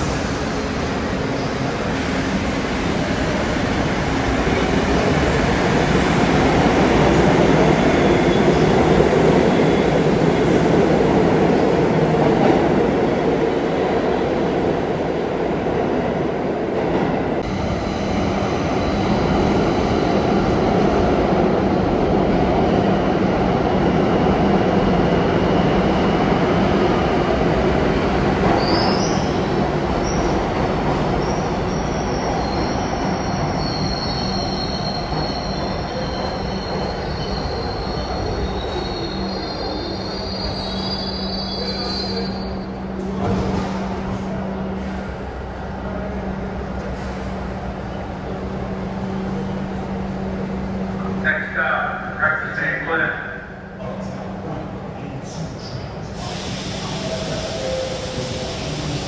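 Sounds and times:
subway train rumbling on rails: 0:00.0 - 0:59.0
high-pitched wheel squeal: 0:31.3 - 0:42.5.

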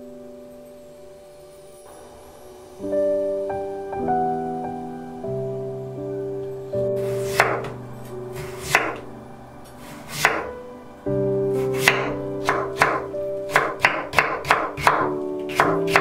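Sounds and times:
background music: 0:00.0 - 0:16.0
knife chopping on wooden board: 0:07.0 - 0:07.7, 0:08.4 - 0:09.0, 0:09.9 - 0:10.5, 0:11.6 - 0:16.0.

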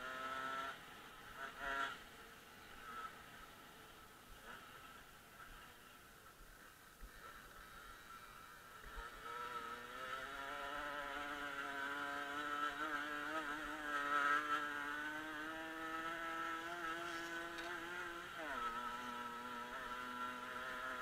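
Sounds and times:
moped engine revving: 0:00.0 - 0:02.1, 0:07.3 - 0:21.0.

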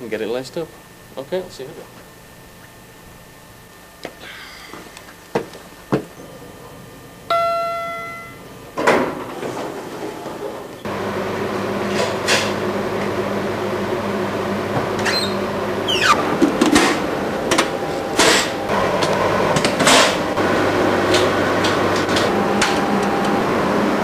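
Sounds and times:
machinery hum: 0:00.0 - 0:24.0
short falling squeak: 0:15.1 - 0:16.2.

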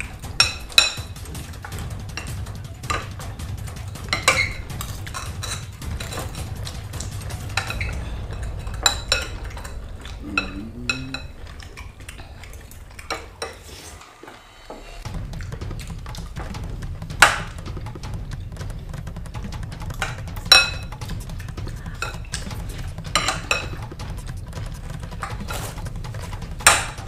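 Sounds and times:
low rumble: 0:05.8 - 0:13.7.

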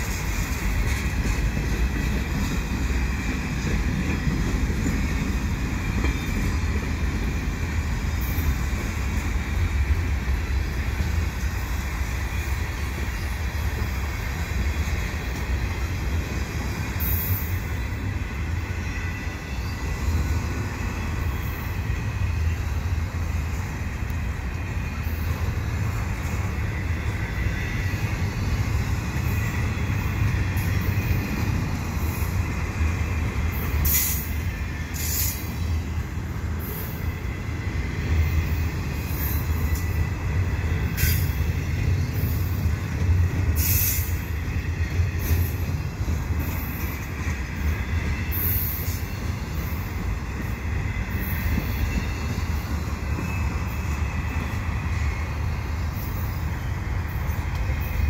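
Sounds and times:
train wheels rumbling on rails: 0:00.0 - 0:58.0
faint high wheel squeal: 0:02.1 - 0:07.0, 0:16.5 - 0:23.0, 0:24.5 - 0:58.0.

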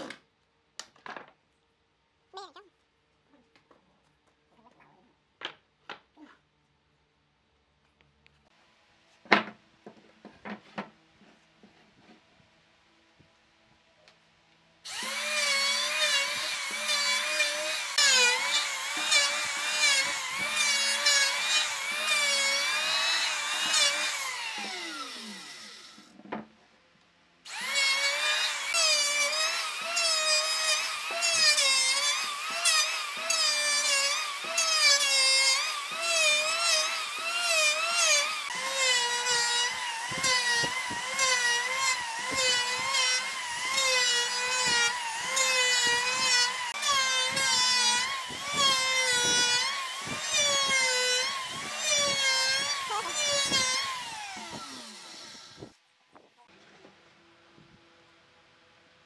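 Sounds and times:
electric planer cutting wood: 0:14.9 - 0:26.1, 0:27.5 - 0:55.7.

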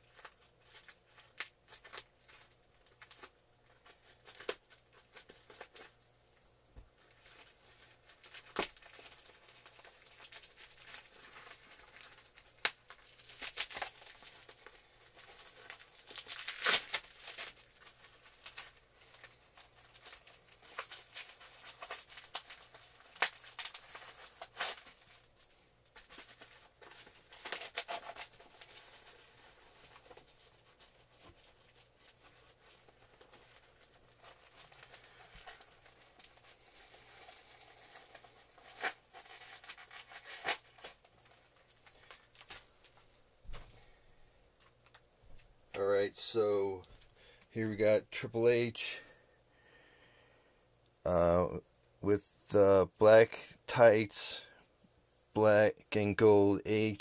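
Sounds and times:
packaging tearing and crinkling: 0:00.0 - 0:06.0, 0:07.1 - 0:43.6.

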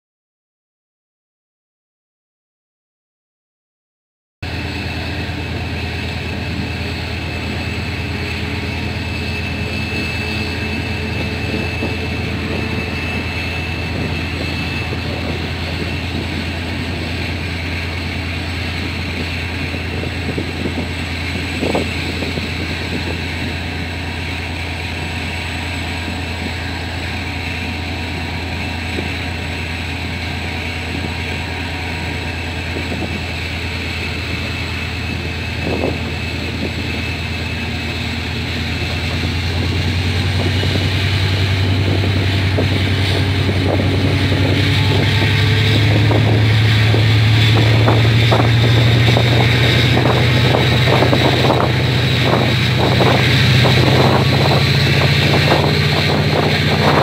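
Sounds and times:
diesel locomotive engine hum: 0:04.4 - 0:57.0
train running noise: 0:04.4 - 0:57.0.

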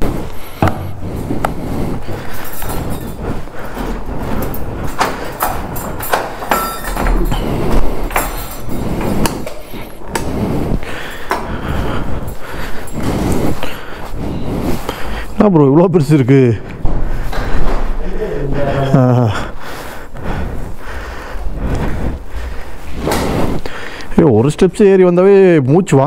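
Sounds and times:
knocks clicks and clatters: 0:00.3 - 0:13.9.

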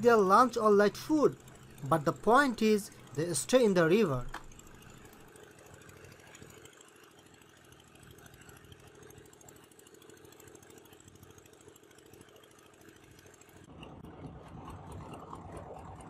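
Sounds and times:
boat engine idling: 0:00.0 - 0:16.0.

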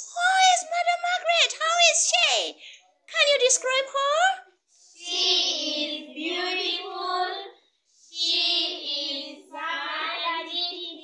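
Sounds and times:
girls singing together: 0:04.9 - 0:11.0.

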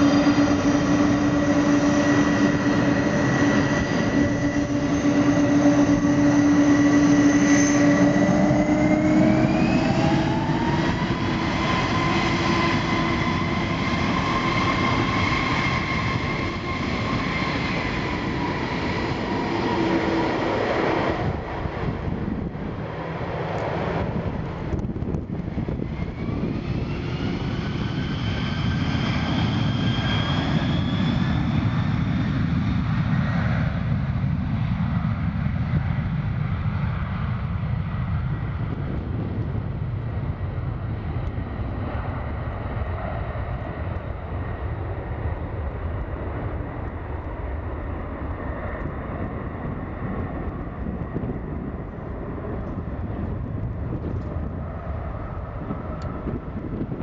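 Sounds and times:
jet engines low rumble: 0:00.0 - 0:57.0
jet engines whining: 0:00.0 - 0:57.0.

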